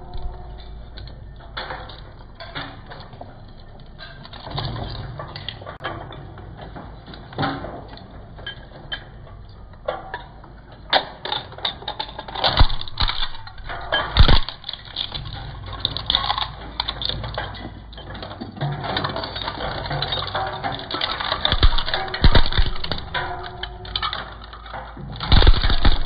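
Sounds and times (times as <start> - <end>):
shredder crunching plastic and metal: 12.3 - 17.3, 18.7 - 26.0.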